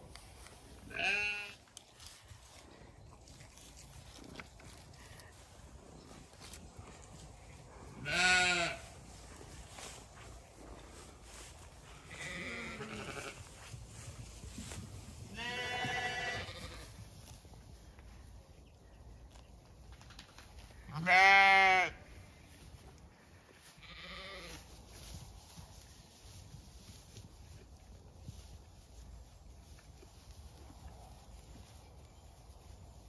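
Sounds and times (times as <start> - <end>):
sheep bleating: 0.9 - 1.6, 8.0 - 8.9, 12.0 - 13.4, 15.3 - 16.9, 20.9 - 22.0, 23.8 - 24.6.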